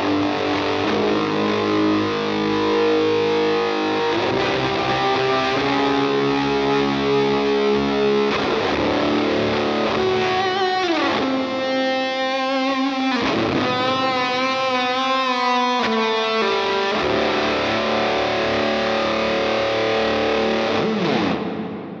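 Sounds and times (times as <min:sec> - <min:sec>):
fuzzy electric guitar: 0:00.0 - 0:22.0.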